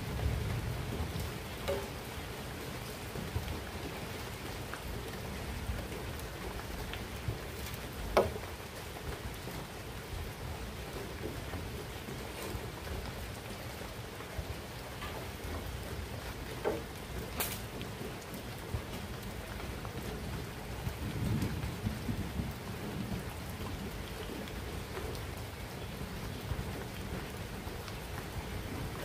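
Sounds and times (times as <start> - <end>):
low rumble of thunder: 0.0 - 3.8, 17.6 - 29.0
steady rain: 0.0 - 29.0.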